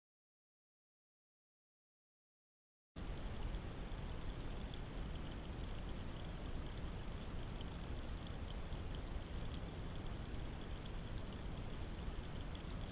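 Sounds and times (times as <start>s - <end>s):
water drips: 3.0s - 12.9s
water trickling over stones: 3.0s - 12.9s.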